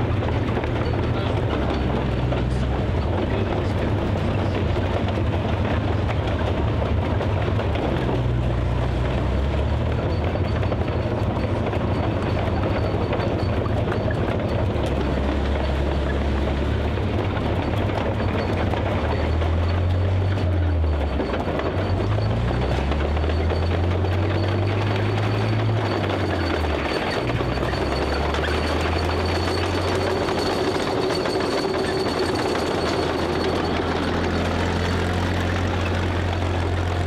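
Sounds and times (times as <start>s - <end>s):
tank engine running: 0.0s - 37.0s.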